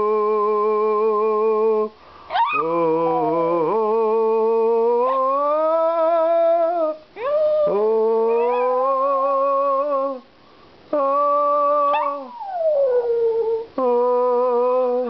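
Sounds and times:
dog howling: 0:02.3 - 0:03.8, 0:05.0 - 0:06.1, 0:07.2 - 0:09.2, 0:11.7 - 0:13.7.

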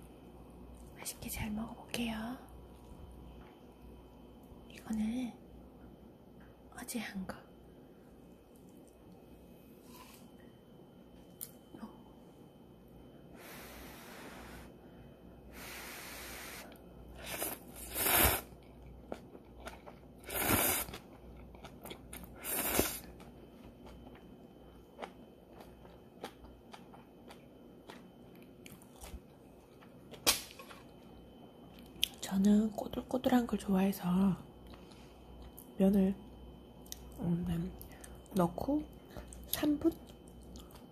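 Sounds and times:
soft hissing: 0:13.3 - 0:14.8, 0:15.5 - 0:18.5
slurping noodles: 0:17.2 - 0:18.5, 0:20.2 - 0:21.0
chewing: 0:18.6 - 0:20.1, 0:20.8 - 0:22.4, 0:24.9 - 0:31.0, 0:39.1 - 0:40.9.

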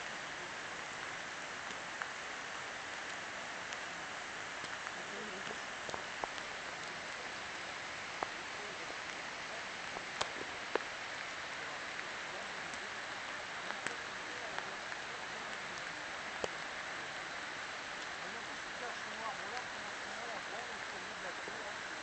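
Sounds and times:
steady hiss: 0:00.0 - 0:22.0
light sharp ticks: 0:01.6 - 0:02.2, 0:04.6 - 0:07.0, 0:11.9 - 0:17.3.

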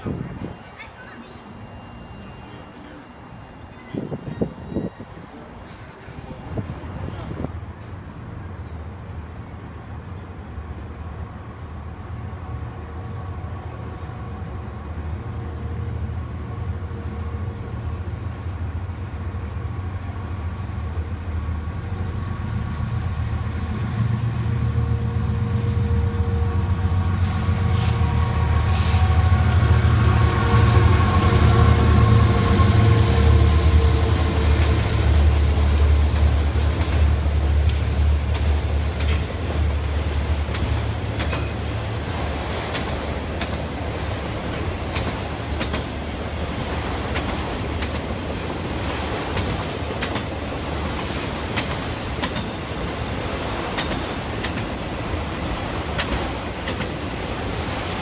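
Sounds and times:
diesel locomotive engine drone: 0:00.0 - 0:58.0
train wheels rumbling on rail: 0:02.8 - 0:58.0
sharp clicks of train wheels: 0:34.6 - 0:58.0.

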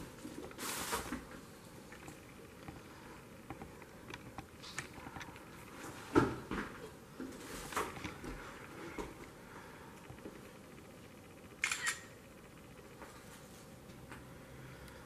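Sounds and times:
people moving on littered floor: 0:04.6 - 0:09.3.

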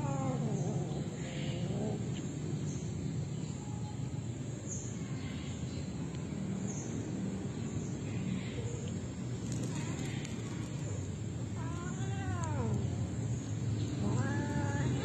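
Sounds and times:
cat yowling: 0:11.6 - 0:13.0, 0:14.0 - 0:15.0.

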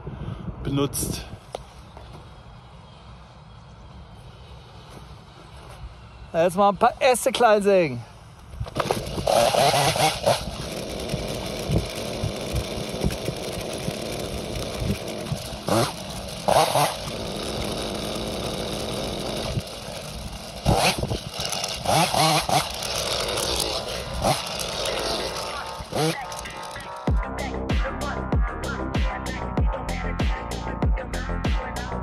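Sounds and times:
chainsaw cutting branches: 0:08.5 - 0:27.2.

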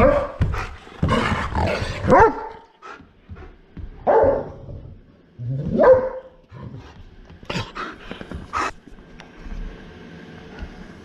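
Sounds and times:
large dog barking: 0:00.0 - 0:00.4, 0:02.0 - 0:02.6, 0:04.0 - 0:04.6, 0:05.7 - 0:06.4.

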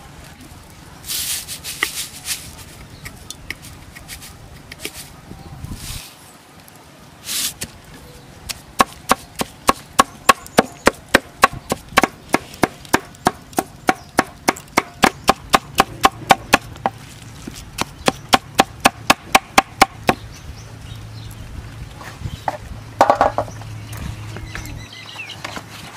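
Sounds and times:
cleaver chopping on wooden board: 0:08.8 - 0:17.0, 0:17.8 - 0:20.2.

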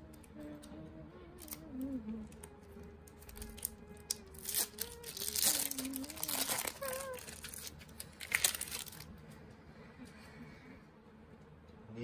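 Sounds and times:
foil pack crinkling: 0:01.4 - 0:01.6, 0:03.1 - 0:09.1.

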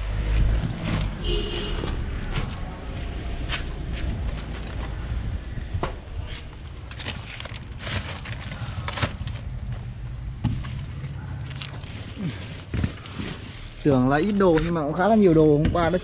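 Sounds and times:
plastic bags rustling: 0:06.5 - 0:15.0.

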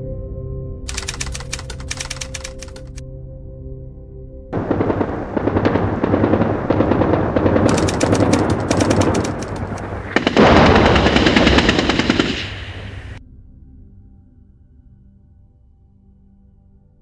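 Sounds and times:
rapid automatic gunfire: 0:00.9 - 0:03.0, 0:04.6 - 0:13.2
dense rumble: 0:04.6 - 0:13.2.

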